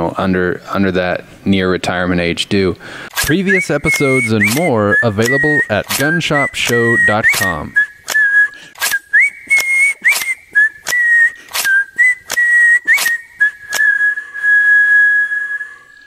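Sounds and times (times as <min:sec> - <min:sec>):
whistled tune: 0:03.2 - 0:16.0.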